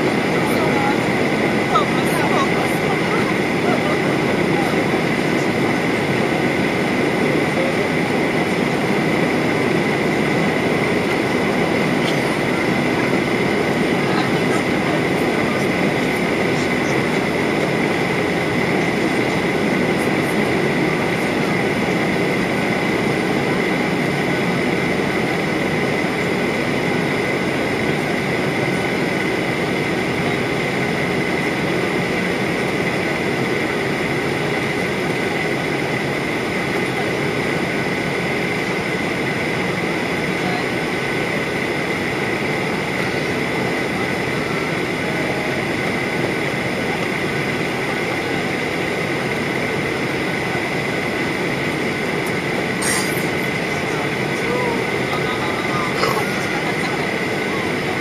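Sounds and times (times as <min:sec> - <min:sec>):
airplane cabin roar: 0:00.0 - 0:58.0
steady high tone: 0:51.8 - 0:58.0.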